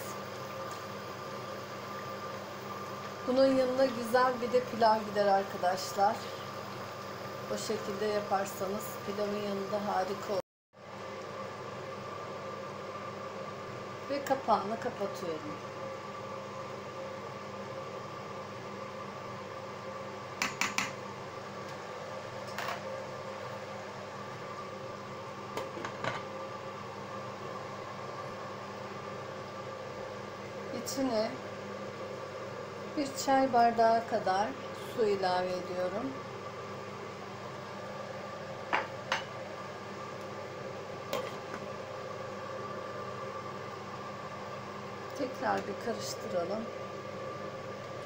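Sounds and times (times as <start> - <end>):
pot simmering: 0.0 - 9.3, 36.1 - 45.9
steady mechanical hum: 0.0 - 48.0.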